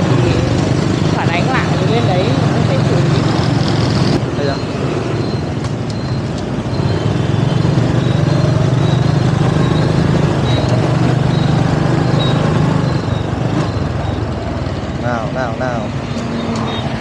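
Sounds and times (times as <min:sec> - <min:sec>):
motorbike engine drone: 0:00.0 - 0:17.0
wind and road noise: 0:00.0 - 0:17.0
faint high beep: 0:04.4 - 0:14.4.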